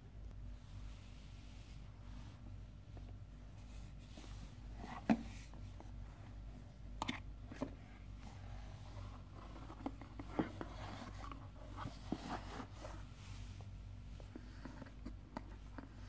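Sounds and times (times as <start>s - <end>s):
cardboard scraping: 8.4s - 13.2s.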